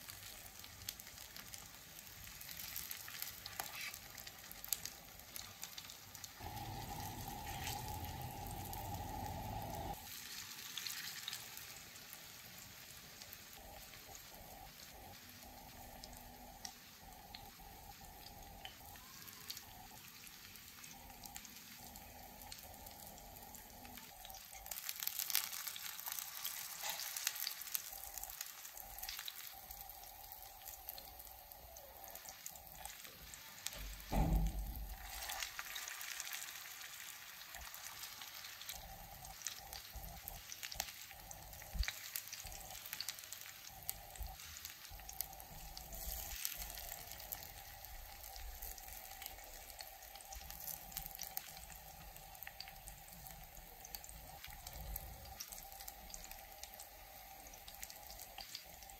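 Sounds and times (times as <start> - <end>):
fish sizzling in oil: 0.0 - 58.9
thump: 33.8 - 35.0.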